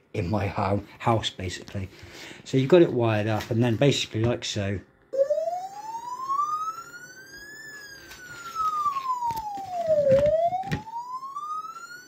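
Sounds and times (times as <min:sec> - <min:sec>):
muffled siren wail: 0:05.1 - 0:12.0.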